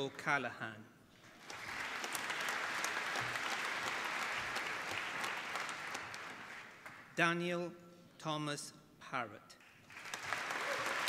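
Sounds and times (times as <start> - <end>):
audience applauding: 1.2 - 7.1, 9.6 - 11.0.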